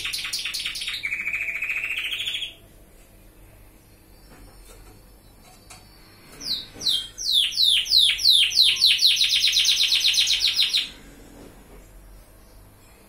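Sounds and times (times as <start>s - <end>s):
canary singing: 0.0s - 2.7s, 4.1s - 11.0s.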